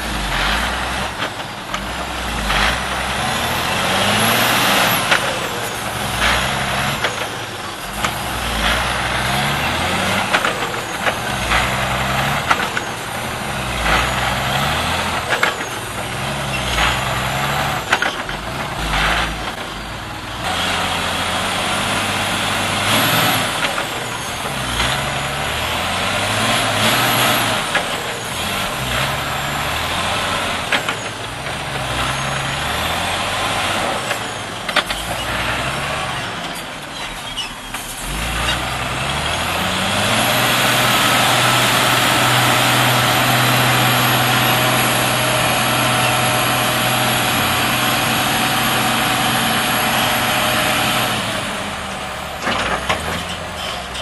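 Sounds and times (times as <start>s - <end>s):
diesel truck engine labouring: 0.0s - 54.0s
knocks and clunks: 52.3s - 54.0s.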